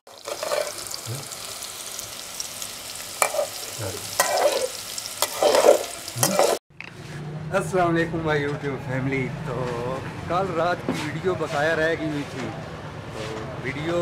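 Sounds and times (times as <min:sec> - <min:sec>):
metal spatula scraping a pan: 0:00.1 - 0:01.0, 0:03.2 - 0:07.2
vegetable slices sizzling in oil: 0:00.1 - 0:06.6.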